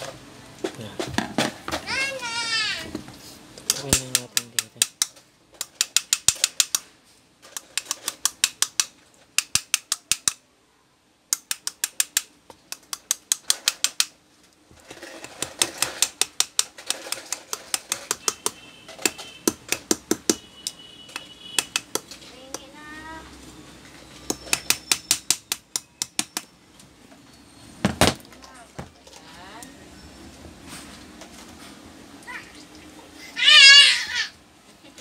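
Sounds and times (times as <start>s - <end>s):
small hammer tapping metal rod: 3.7s - 6.8s, 7.6s - 10.4s, 11.3s - 14.1s, 16.0s - 22.7s, 24.2s - 26.5s.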